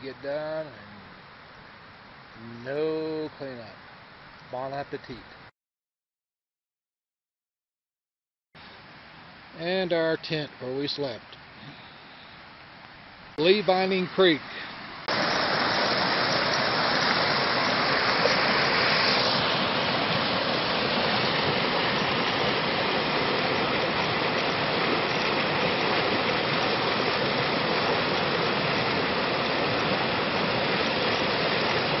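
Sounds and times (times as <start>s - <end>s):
creek rushing over rocks: 13.3s - 32.0s.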